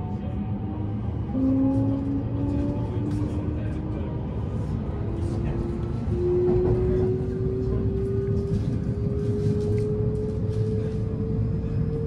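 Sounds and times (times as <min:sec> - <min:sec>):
train running rumble: 0:00.0 - 0:12.0.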